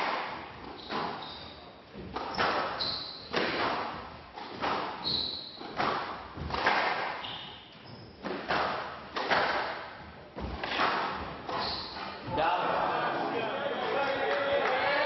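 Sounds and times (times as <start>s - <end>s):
shoes squeaking on court floor: 0.5s - 12.4s
squash ball hits echoing: 2.0s - 7.3s, 8.2s - 12.3s.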